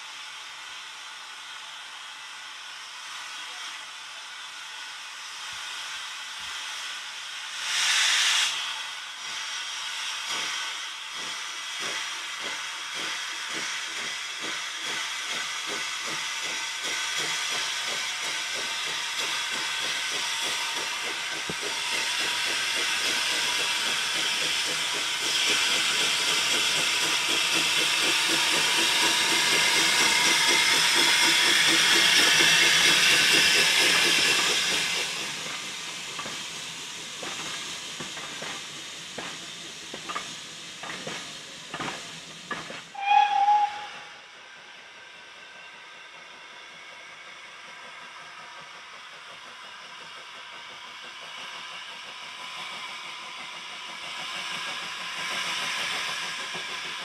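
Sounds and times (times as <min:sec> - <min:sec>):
steam hissing: 0:00.0 - 0:57.0
steam locomotive chuffing: 0:00.0 - 0:57.0
train wheels clicking over rail joints: 0:08.5 - 0:43.0, 0:46.1 - 0:57.0.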